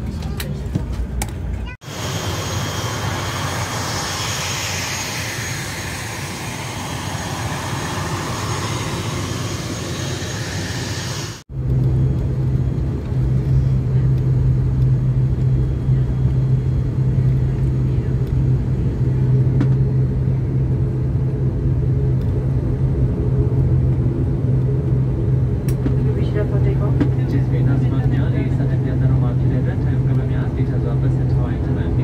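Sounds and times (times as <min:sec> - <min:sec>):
aircraft engine whine: 0:00.0 - 0:32.0
propeller drone in cabin: 0:00.0 - 0:32.0
rushing air: 0:01.8 - 0:11.5.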